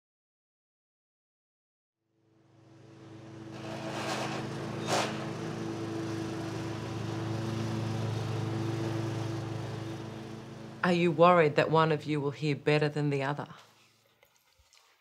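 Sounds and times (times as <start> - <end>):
lawn mower engine running: 2.3 - 12.0.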